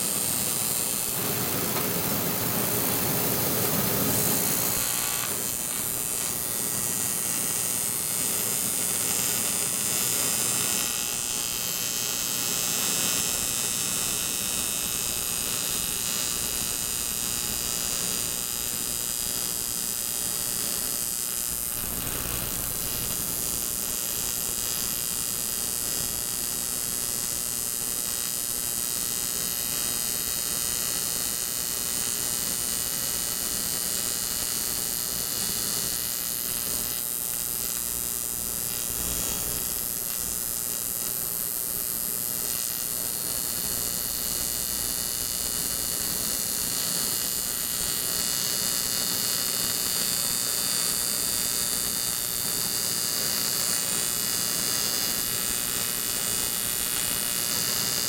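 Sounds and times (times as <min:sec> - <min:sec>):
electrical hum: 0:00.0 - 0:06.9, 0:21.6 - 0:25.1.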